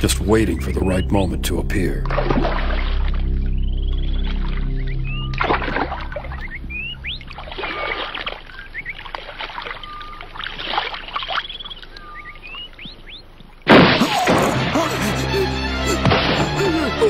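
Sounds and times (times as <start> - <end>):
bird chirps and whistles: 9.8 - 10.2, 11.4 - 13.2.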